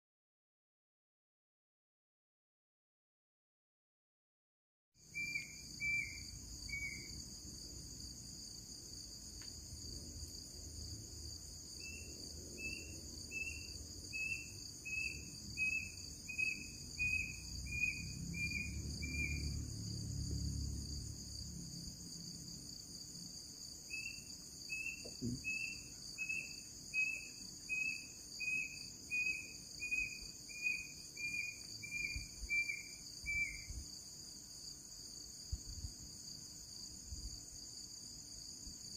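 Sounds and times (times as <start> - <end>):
crickets chirping: 5.0 - 38.9.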